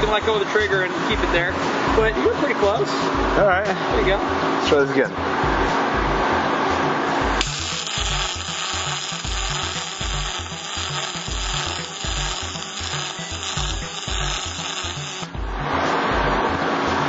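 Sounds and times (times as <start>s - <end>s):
background music with low beat: 0.0s - 17.0s
welding arc running: 7.4s - 15.4s.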